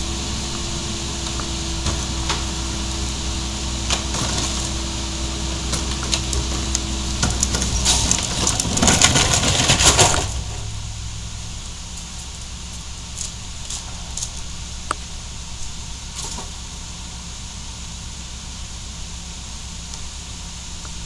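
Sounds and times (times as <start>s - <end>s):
dense crackling and clattering: 0.0s - 16.7s
diesel engine running: 0.0s - 21.0s.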